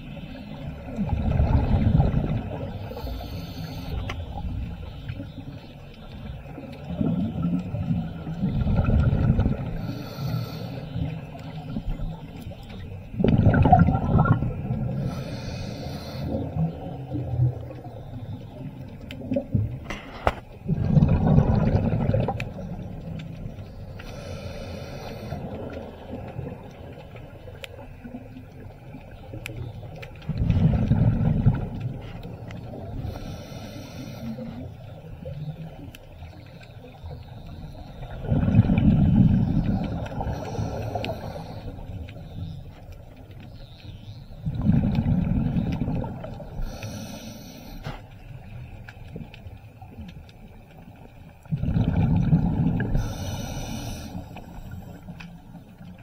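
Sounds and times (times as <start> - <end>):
rush of exhaled bubbles: 0.7 - 4.7, 6.9 - 11.2, 13.1 - 17.7, 19.2 - 23.2, 30.3 - 33.1, 37.9 - 42.0, 44.4 - 47.1, 51.4 - 55.2
regulator inhale hiss: 2.8 - 4.3, 9.6 - 11.1, 14.9 - 16.6, 24.0 - 25.7, 32.9 - 34.7, 40.2 - 42.0, 46.5 - 48.9, 52.8 - 55.2.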